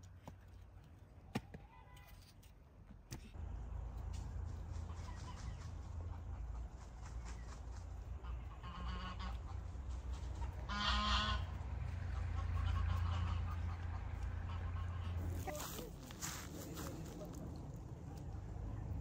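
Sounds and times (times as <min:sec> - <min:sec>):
steady low rumble: 0:03.4 - 0:19.0
poultry honk-like calls: 0:08.1 - 0:15.8.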